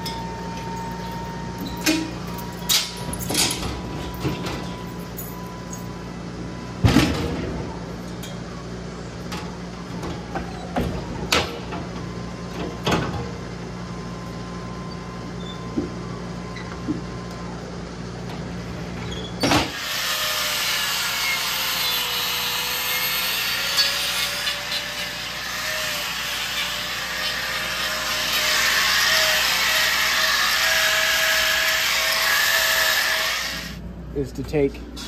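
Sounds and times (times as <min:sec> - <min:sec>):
low machine hum: 0:00.0 - 0:19.4, 0:33.1 - 0:35.0
angle grinder grinding hoof: 0:19.6 - 0:33.8.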